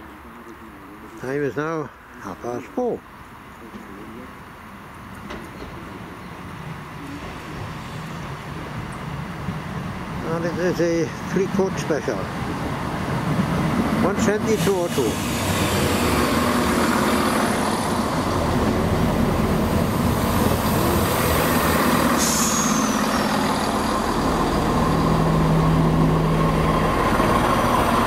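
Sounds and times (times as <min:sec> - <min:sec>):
diesel train engines droning: 0:00.0 - 0:28.0
high squeal: 0:22.2 - 0:23.5.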